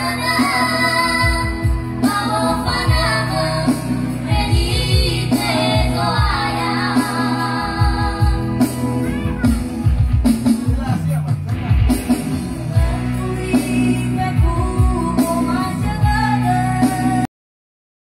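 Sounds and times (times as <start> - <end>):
children singing into microphones: 0.0 - 9.7
instrumental backing with drum beat: 0.0 - 17.3.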